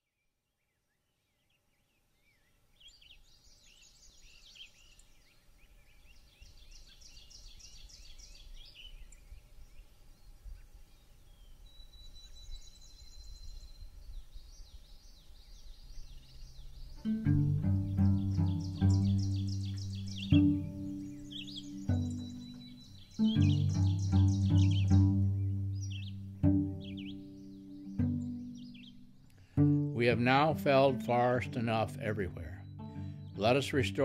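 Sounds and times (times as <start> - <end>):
songbirds chirping and warbling: 0.0 - 34.0
low music note: 17.0 - 27.3, 29.6 - 34.0.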